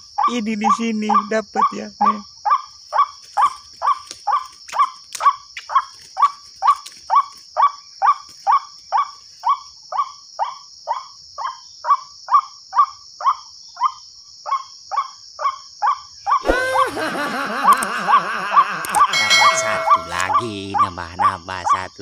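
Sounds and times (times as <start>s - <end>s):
croaking bird call over loudspeaker: 0.0s - 4.5s, 17.4s - 22.0s.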